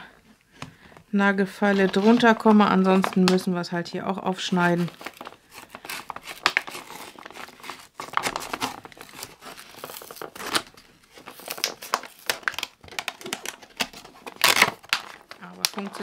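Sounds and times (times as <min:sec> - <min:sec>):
blister pack crinkling and tearing: 0:04.4 - 0:16.0.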